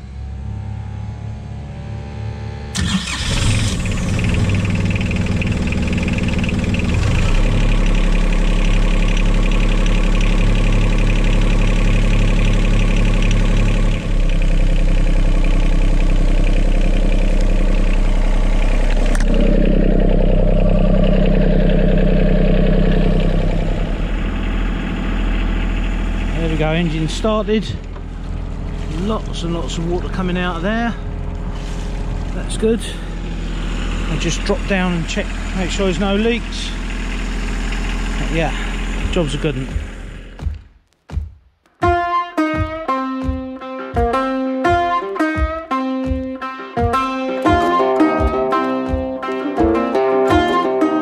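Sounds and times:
diesel engine starting and idling: 0.0 - 40.6.

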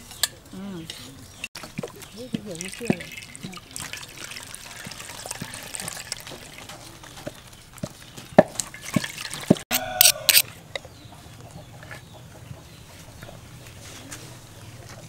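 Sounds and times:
milk dripping into a metal bowl: 1.6 - 9.6.

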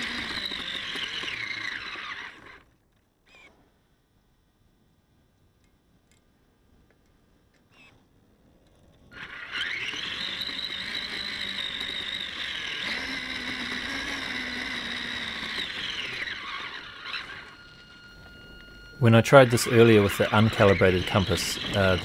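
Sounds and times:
electric rc car motor whining: 0.0 - 3.6, 8.7 - 22.0.

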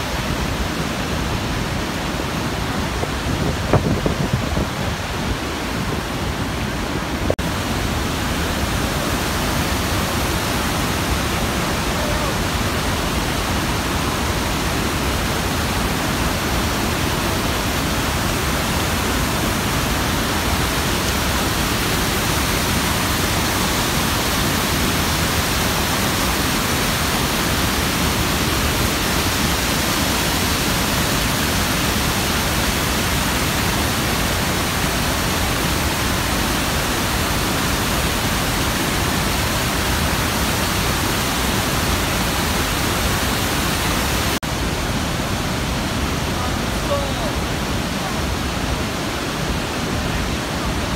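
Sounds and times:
waterfall roaring: 0.0 - 50.9.

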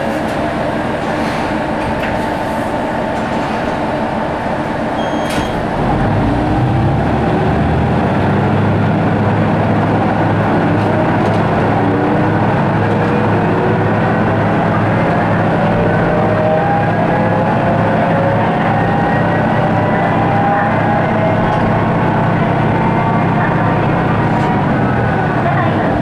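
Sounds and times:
diesel railcar engine drone: 0.0 - 26.0.

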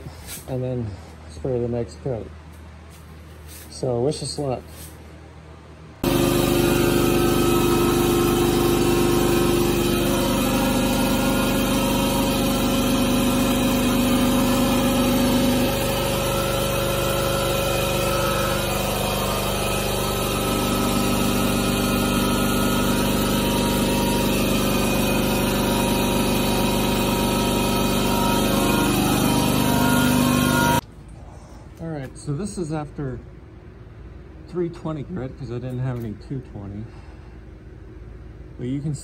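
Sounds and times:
air compressor motor drone: 6.0 - 31.8.

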